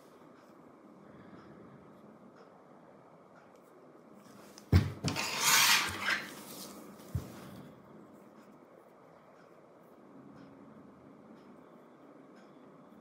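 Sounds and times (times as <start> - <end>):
plastic tools scraping: 5.0 - 6.8.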